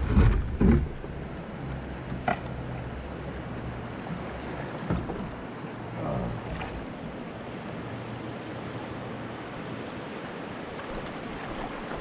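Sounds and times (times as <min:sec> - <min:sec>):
short splashes or knocks: 0:00.0 - 0:01.1
wind rumbling on microphone: 0:00.0 - 0:05.4
paddle pulling through water: 0:00.0 - 0:12.0
river current rushing: 0:00.0 - 0:12.0.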